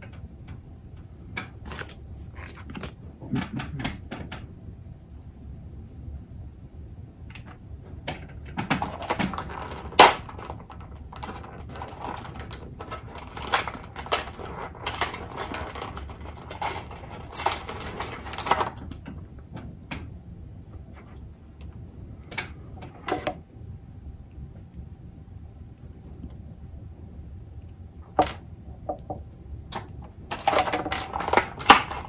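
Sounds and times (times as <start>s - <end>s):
small clicks and rustles of wiring parts: 7.2s - 23.4s, 27.6s - 32.0s.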